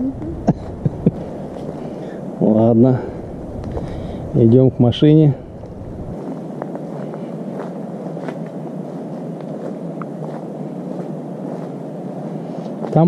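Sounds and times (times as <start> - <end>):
footsteps on gravel: 5.4 - 13.0.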